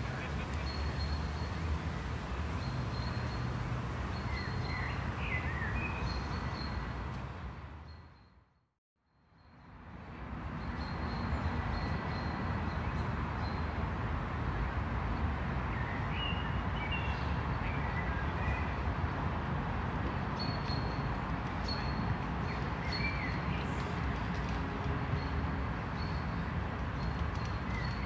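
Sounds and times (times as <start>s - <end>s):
distant traffic rumble: 0.0s - 8.0s.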